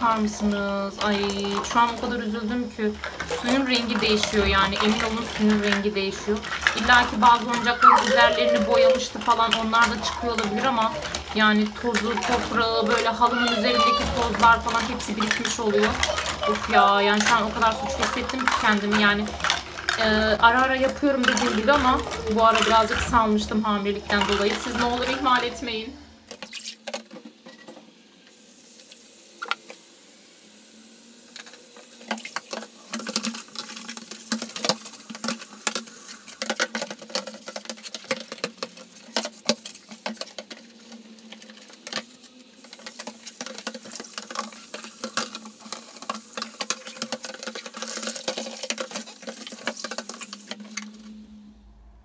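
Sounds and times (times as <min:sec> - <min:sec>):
plastic parts knocking: 0:00.0 - 0:25.7, 0:26.3 - 0:27.7, 0:31.4 - 0:51.1
quick clicks and rustles: 0:00.1 - 0:27.4, 0:31.4 - 0:51.2
steady low hum: 0:50.6 - 0:52.0.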